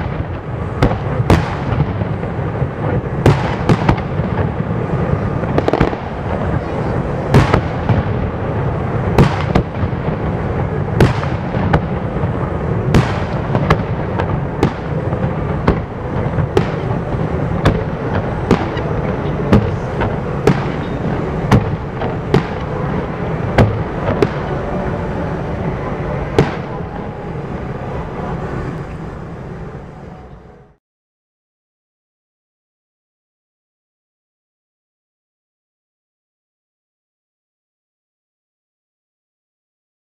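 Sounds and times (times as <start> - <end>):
fireworks bangs: 0.0 - 30.6
continuous din: 0.2 - 30.8.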